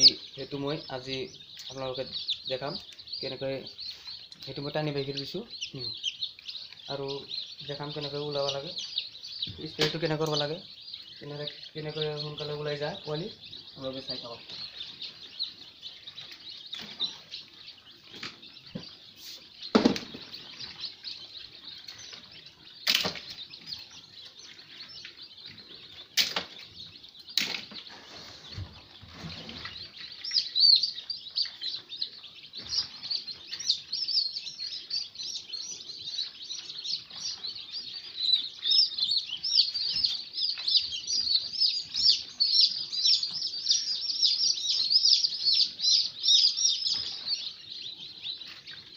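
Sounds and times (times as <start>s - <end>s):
chicks peeping rapidly: 0.0s - 48.9s
sharp knocks on incubator: 19.7s - 20.4s.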